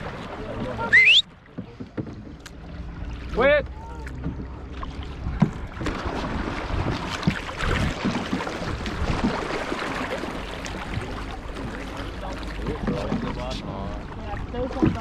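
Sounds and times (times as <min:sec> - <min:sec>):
paddles splashing in water: 0:00.0 - 0:15.0
wind rumble on microphone: 0:04.2 - 0:09.5.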